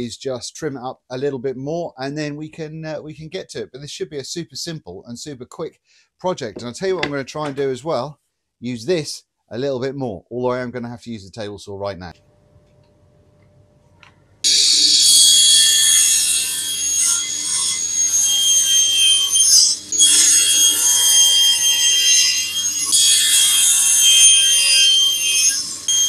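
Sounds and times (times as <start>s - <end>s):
table saw whine: 14.4s - 26.0s
saw blade rasping wood: 14.5s - 26.0s.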